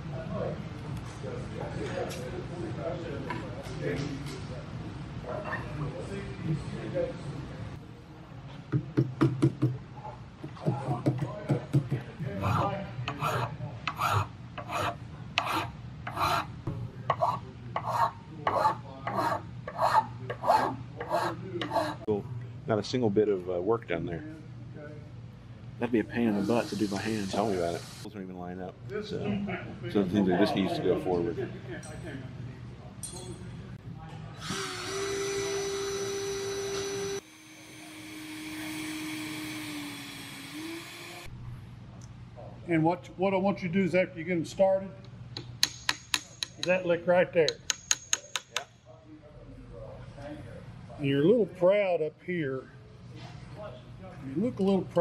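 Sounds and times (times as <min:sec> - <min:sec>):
hand file strokes on metal: 0:13.1 - 0:16.5
cordless drill drilling into steel: 0:34.4 - 0:41.3.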